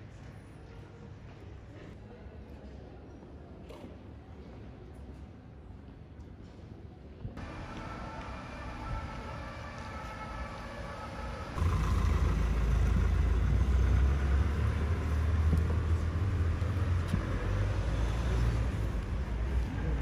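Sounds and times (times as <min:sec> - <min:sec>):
traffic rumble and hiss: 0:07.4 - 0:20.0.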